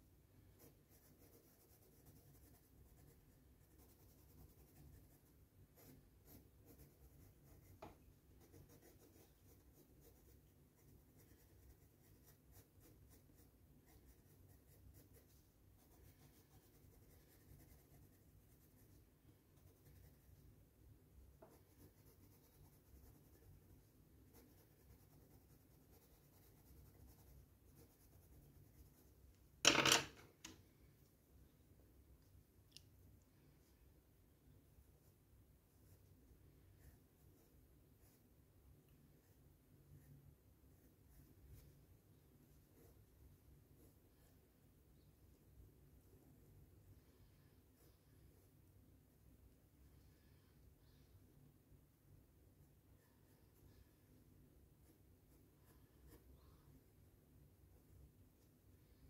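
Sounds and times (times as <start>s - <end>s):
colored pencil scratching on paper: 0.4s - 20.6s, 21.3s - 30.0s, 34.7s - 48.7s, 52.6s - 57.0s.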